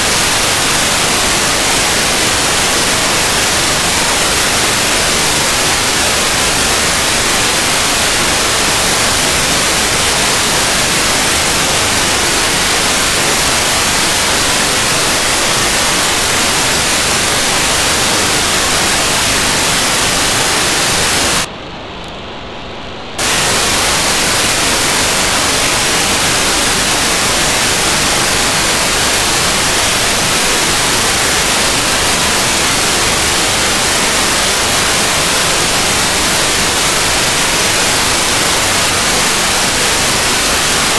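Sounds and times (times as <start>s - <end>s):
dull data burst: 0.0s - 21.5s, 23.2s - 40.9s
radio static hiss: 0.0s - 40.9s.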